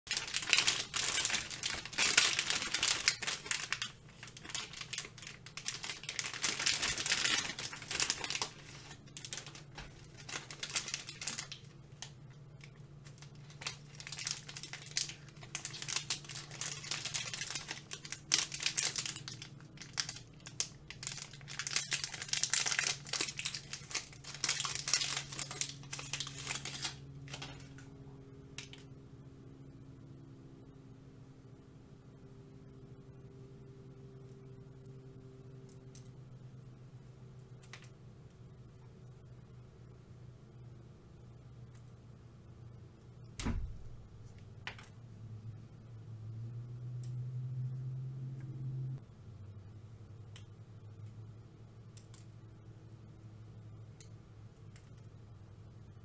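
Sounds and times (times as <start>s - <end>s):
plastic wrappers crinkling: 0.1s - 27.8s.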